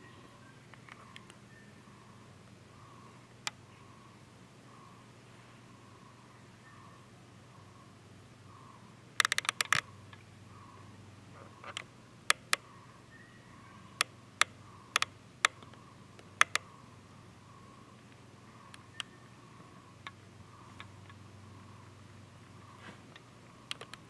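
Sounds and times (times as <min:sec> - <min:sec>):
faint steady hum: 0:00.0 - 0:24.0
sharp clicks: 0:09.2 - 0:10.2, 0:11.6 - 0:12.7, 0:14.0 - 0:16.7, 0:23.2 - 0:24.0.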